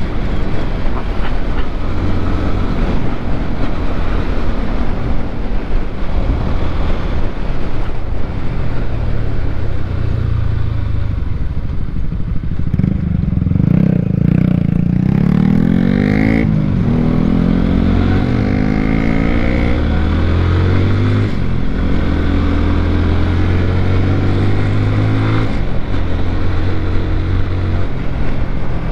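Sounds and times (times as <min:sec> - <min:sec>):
motorcycle engine running: 0:07.2 - 0:20.1.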